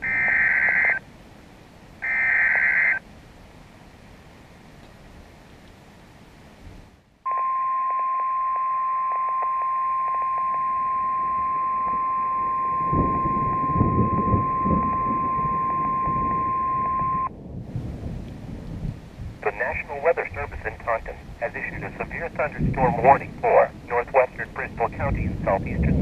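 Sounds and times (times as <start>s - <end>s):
piercing alarm tone through radio speaker: 0.0s - 1.0s, 2.0s - 3.0s, 7.3s - 17.3s
low rumble: 10.8s - 26.0s.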